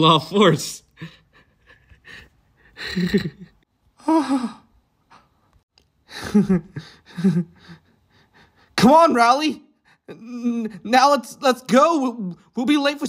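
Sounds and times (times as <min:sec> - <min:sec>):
person sighing and gasping: 0:04.0 - 0:05.3, 0:06.0 - 0:08.8.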